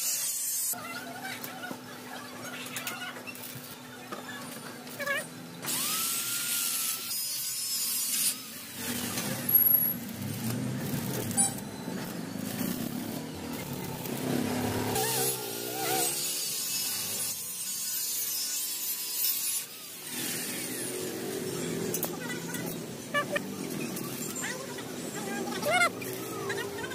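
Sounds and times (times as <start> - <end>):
power tool grinding metal: 5.2 - 26.9.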